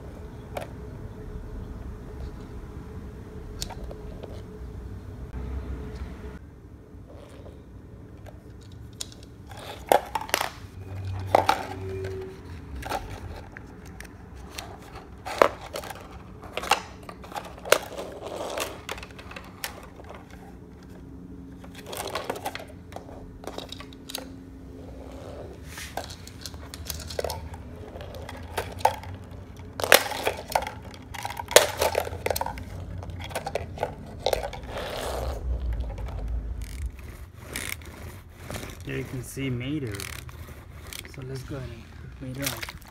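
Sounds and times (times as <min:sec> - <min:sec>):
plastic toys knocking on wooden floor: 0:26.0 - 0:34.7.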